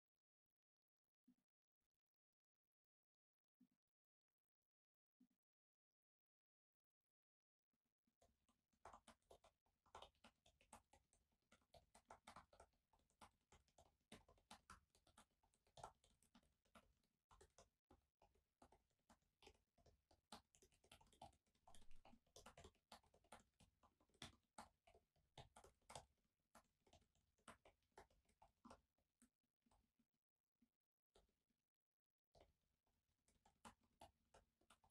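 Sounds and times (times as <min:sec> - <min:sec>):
typing on laptop keyboard: 0:08.2 - 0:29.9, 0:32.3 - 0:34.9.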